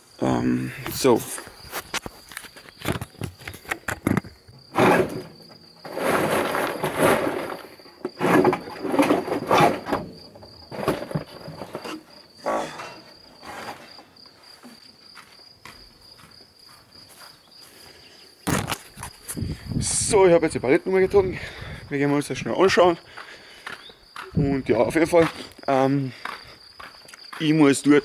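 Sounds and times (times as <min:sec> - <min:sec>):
cricket trilling: 0:00.0 - 0:28.0
wooden pallets knocking and scraping: 0:01.9 - 0:14.8.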